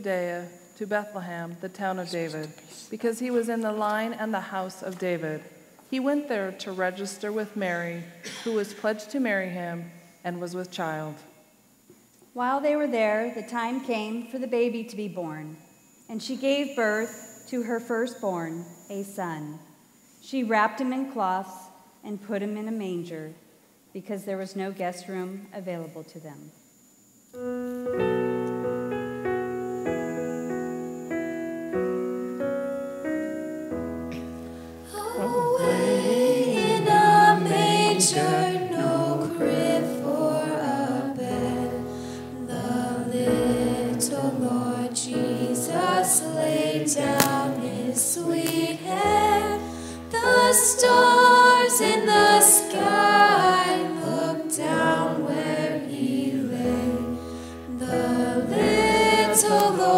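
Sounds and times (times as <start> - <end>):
piano playing: 27.4 - 59.9
voices singing: 34.9 - 59.9.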